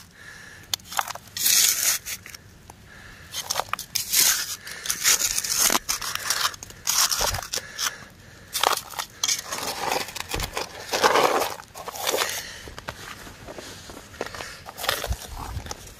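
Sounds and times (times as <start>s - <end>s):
metal scoop scraping gravel: 0.9s - 2.4s, 3.4s - 7.6s, 8.5s - 12.4s.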